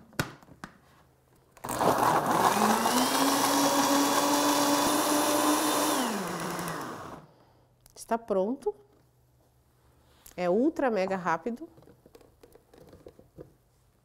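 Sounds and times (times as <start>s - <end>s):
blender grinding: 1.6s - 7.3s
blender motor winding down: 1.6s - 7.3s.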